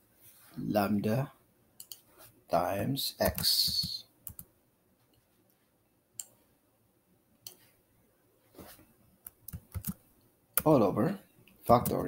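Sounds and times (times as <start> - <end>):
keyboard and mouse clicks: 1.8 - 2.0, 3.3 - 4.5, 9.2 - 10.0.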